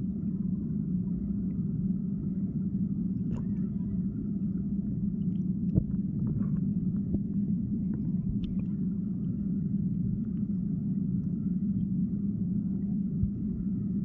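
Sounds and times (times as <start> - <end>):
underwater flowing water rumble: 0.0 - 14.0
faint underwater clicks: 3.2 - 3.7, 5.2 - 8.8, 10.2 - 11.4.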